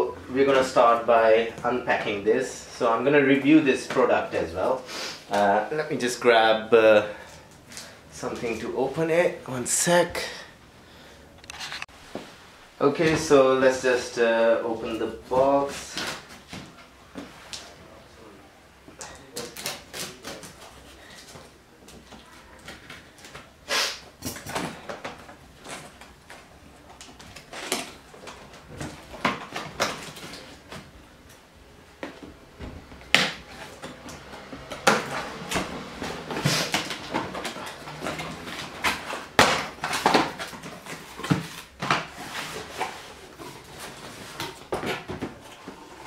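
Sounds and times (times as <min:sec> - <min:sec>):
cardboard boxes being handled: 0:33.4 - 0:46.0.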